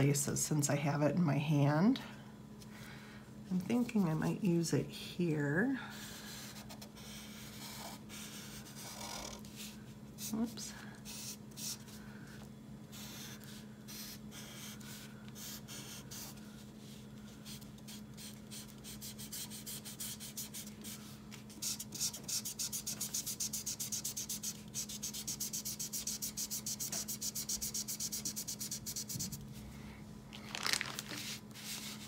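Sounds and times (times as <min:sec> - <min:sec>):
faint steady hum: 0:00.0 - 0:32.0
marker scratching on paper: 0:06.1 - 0:10.3, 0:11.1 - 0:11.9, 0:12.9 - 0:29.3.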